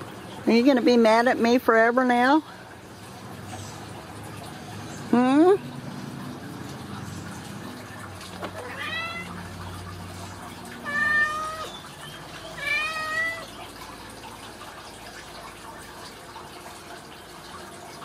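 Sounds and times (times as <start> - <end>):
cat meowing: 8.6 - 9.5, 10.8 - 11.8, 12.6 - 13.5.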